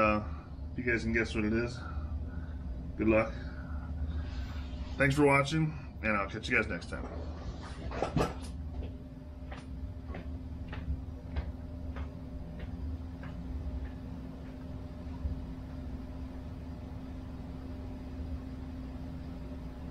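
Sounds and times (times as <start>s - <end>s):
steady low hum: 0.0s - 19.9s
footsteps on concrete floor: 7.4s - 15.0s.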